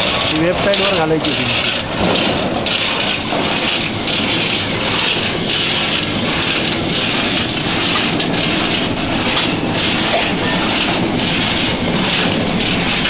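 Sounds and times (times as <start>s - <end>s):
nut cutting machine clattering: 0.0s - 13.0s.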